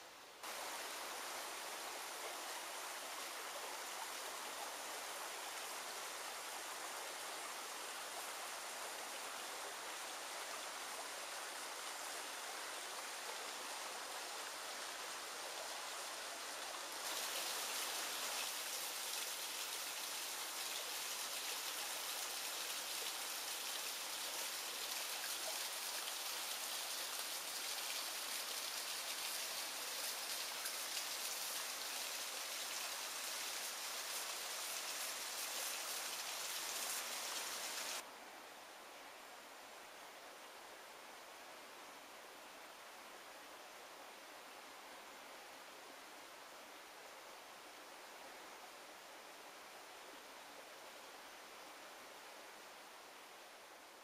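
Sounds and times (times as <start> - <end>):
small waterfall into pool: 0.0 - 38.1
river rushing over rocks: 0.4 - 38.1.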